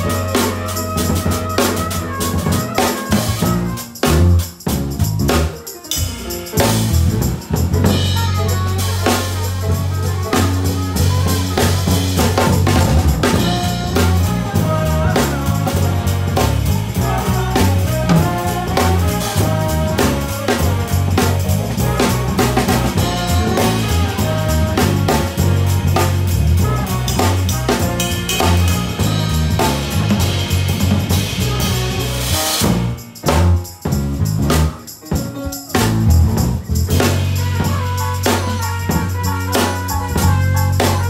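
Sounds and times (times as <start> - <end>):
drum kit played with sticks: 0.0 - 41.0
electric bass guitar: 0.0 - 41.0.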